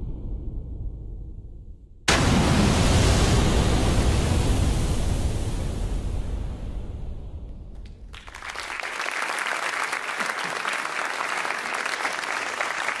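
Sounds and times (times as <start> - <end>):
steady noise: 0.0 - 8.1
audience applause: 8.1 - 13.0.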